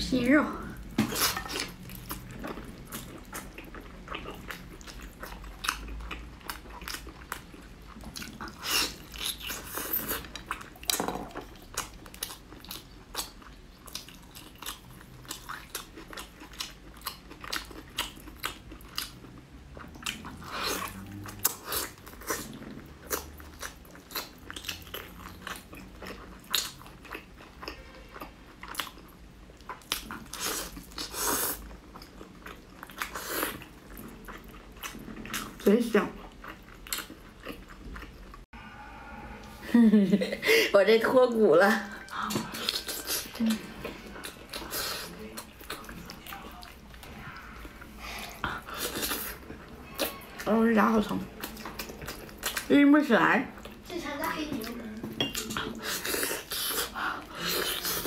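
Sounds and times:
chewing and biting meat: 0:01.0 - 0:35.6, 0:42.4 - 0:50.2, 0:51.3 - 0:52.7.

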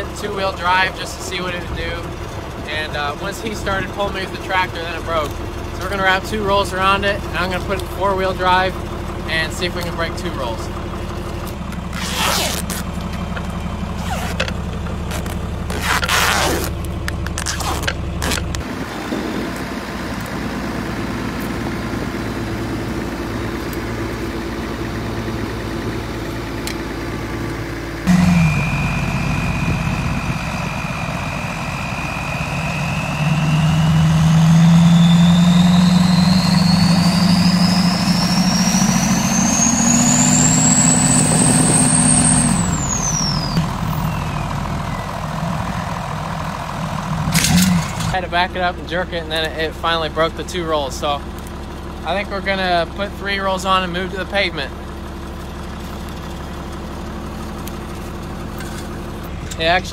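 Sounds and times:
diesel engines idling: 0:00.0 - 0:59.9
diesel pickup revving hard: 0:13.8 - 0:51.2
high whine: 0:20.8 - 0:46.4.

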